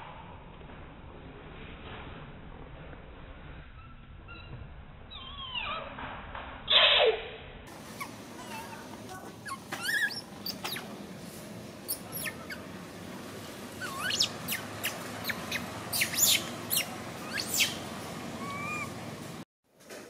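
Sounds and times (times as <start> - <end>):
monkey squeaking: 7.8 - 11.0, 11.8 - 12.8, 13.7 - 19.0
sharp high chirps: 13.8 - 17.8.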